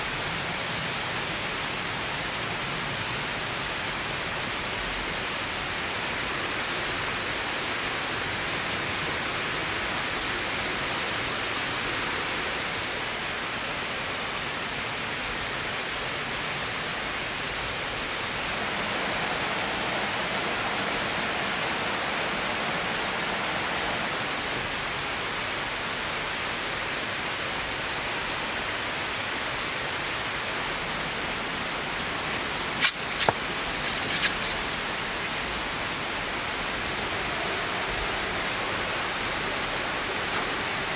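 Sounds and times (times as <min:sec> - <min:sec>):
metal peel scraping on stone: 0:32.2 - 0:34.7.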